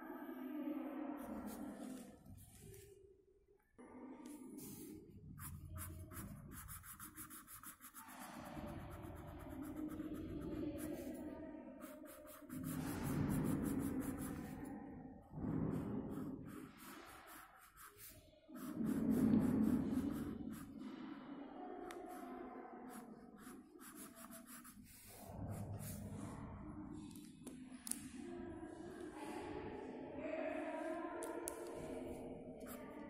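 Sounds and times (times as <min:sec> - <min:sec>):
pencil scratching on paper: 0:04.6 - 0:14.7, 0:15.5 - 0:20.8, 0:22.8 - 0:26.3.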